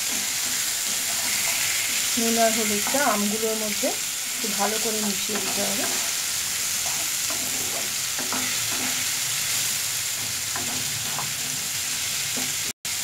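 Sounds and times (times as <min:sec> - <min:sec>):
wooden spatula scraping pan: 0:00.0 - 0:03.2, 0:04.7 - 0:06.2, 0:06.8 - 0:09.3, 0:10.2 - 0:12.7
mango sizzling in oil: 0:00.0 - 0:13.0.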